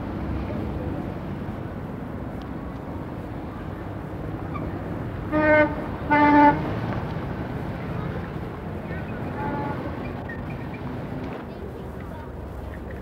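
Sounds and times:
city street traffic: 0.0s - 13.0s
vehicle horn honks: 5.3s - 6.6s, 9.4s - 9.9s.

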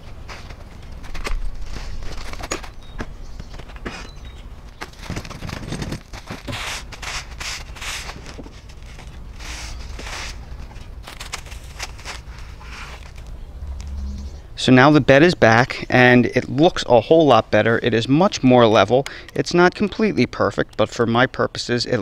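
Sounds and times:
shovel scraping soil: 5.4s - 13.3s.

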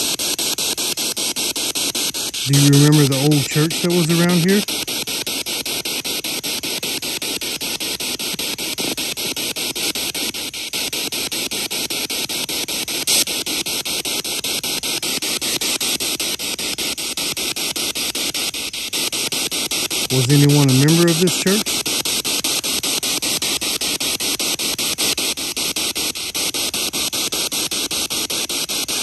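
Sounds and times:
pulsing radio static: 1.9s - 5.2s, 20.0s - 22.7s.

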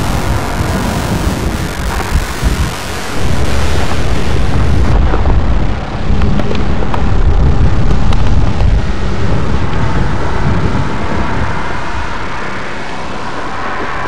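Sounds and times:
sharp crackles and pops: 0.0s - 11.1s
lava rumbling roar: 0.0s - 14.0s.

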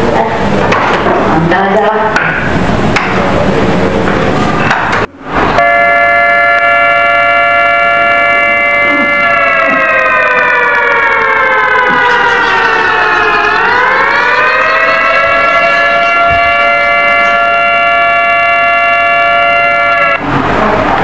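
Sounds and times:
siren wailing: 5.6s - 20.2s.

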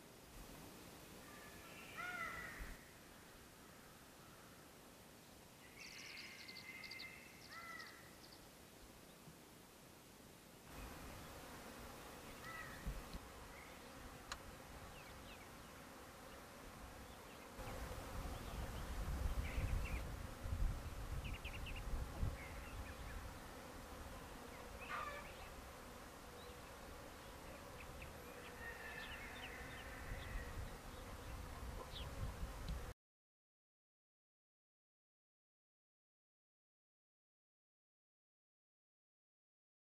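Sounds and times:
bird chirps: 5.6s - 8.4s
bees buzzing: 10.7s - 32.9s.

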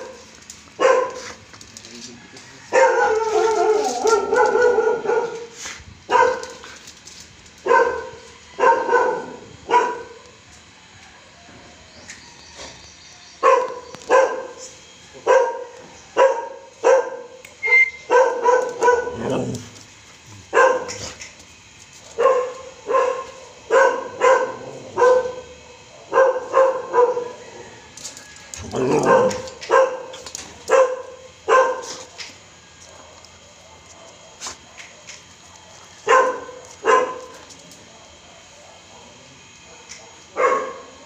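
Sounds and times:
dog barking excitedly: 0.8s - 1.4s, 2.7s - 6.6s, 7.6s - 10.2s, 13.4s - 14.6s, 15.2s - 17.4s, 18.0s - 19.6s, 20.4s - 21.2s, 22.0s - 27.4s, 28.6s - 32.3s, 32.9s - 41.0s.

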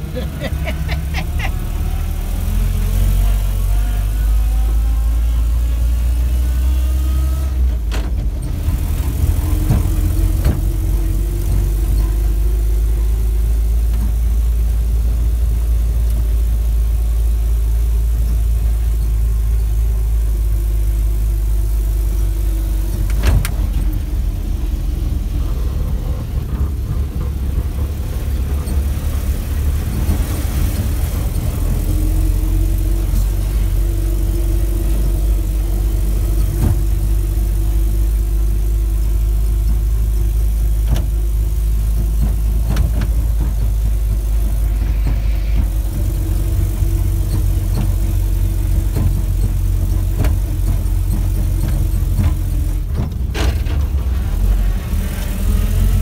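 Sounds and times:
vehicle engine droning: 0.0s - 56.0s.

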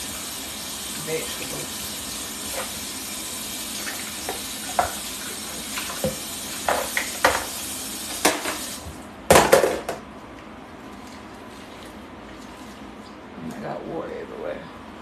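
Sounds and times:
faucet water running into sink: 0.0s - 8.9s
plastic part clattering into sink: 9.3s - 10.0s.

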